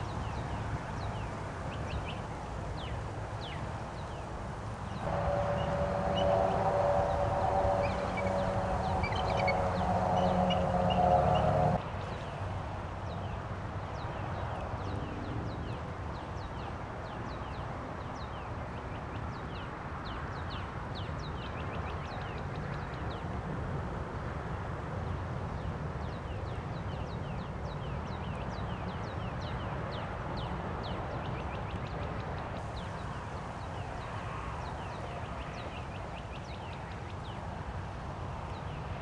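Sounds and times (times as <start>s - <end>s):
birds chirping: 0.0s - 11.8s
wind rumble on microphone: 0.0s - 39.0s.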